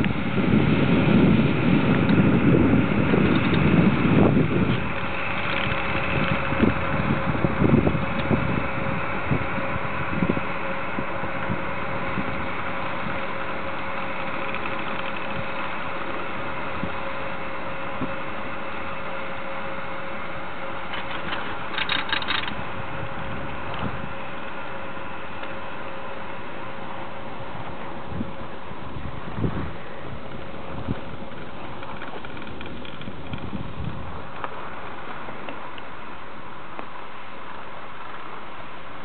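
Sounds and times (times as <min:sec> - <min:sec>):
wind buffeting microphone: 0:00.0 - 0:36.1
ski lift mechanical hum: 0:00.0 - 0:39.0.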